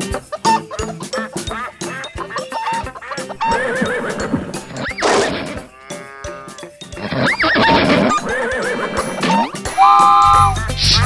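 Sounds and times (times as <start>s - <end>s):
children's music: 0.0s - 11.0s
horse whinny: 3.4s - 10.6s.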